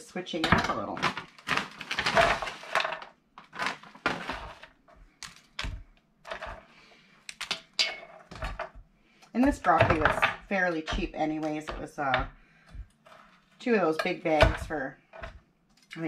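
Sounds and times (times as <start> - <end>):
plastic bag crinkling: 0.9 - 5.6.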